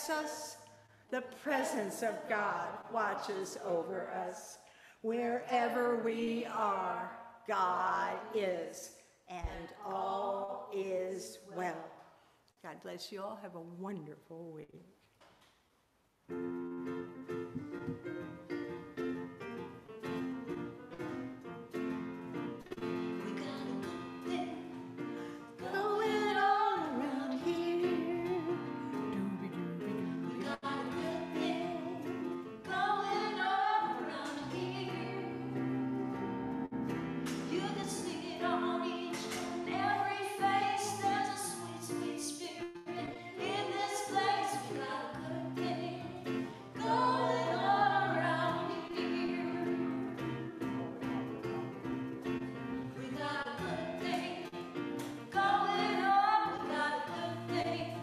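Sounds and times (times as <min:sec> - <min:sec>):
woman singing: 0:09.3 - 0:11.8, 0:23.1 - 0:24.8, 0:25.5 - 0:35.6, 0:37.5 - 0:50.0, 0:53.0 - 0:54.5, 0:55.3 - 0:58.0.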